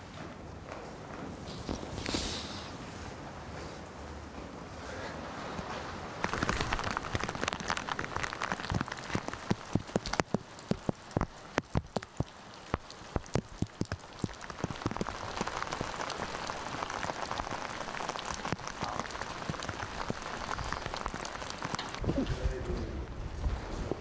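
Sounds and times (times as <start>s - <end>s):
steady rain: 1.3s - 24.0s
raindrops ticking on hard surface: 6.1s - 22.7s.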